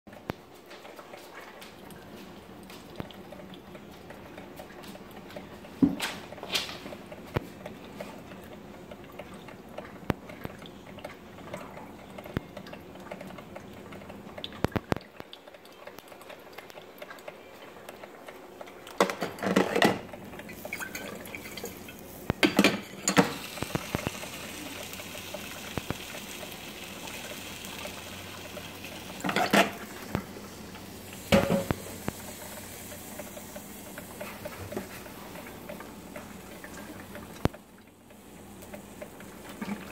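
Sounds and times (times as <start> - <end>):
coffee maker gurgling: 0.1 - 39.9
coffee maker hissing: 19.4 - 37.5.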